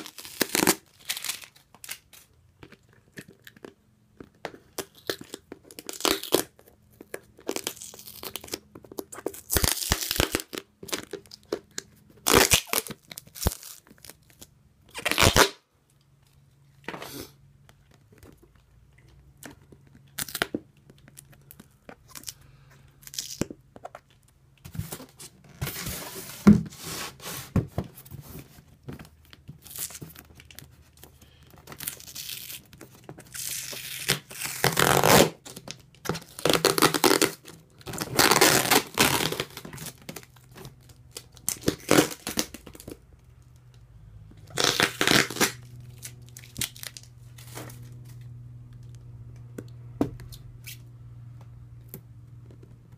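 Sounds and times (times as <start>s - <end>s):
packing tape ripping off plastic: 0.0s - 2.3s, 4.7s - 15.6s, 29.5s - 30.6s, 31.7s - 43.0s, 44.5s - 48.0s.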